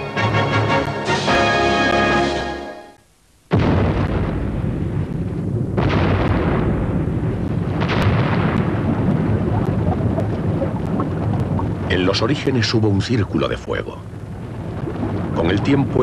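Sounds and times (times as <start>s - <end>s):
volcanic blasts: 3.5s - 16.0s
volcano rumbling: 3.5s - 16.0s.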